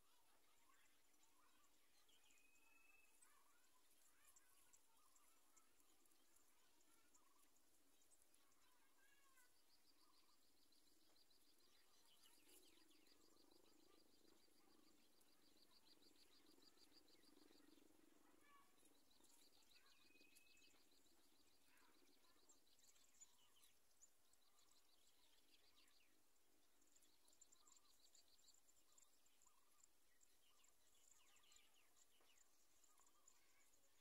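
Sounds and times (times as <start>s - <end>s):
faint low hum: 0.0s - 34.0s.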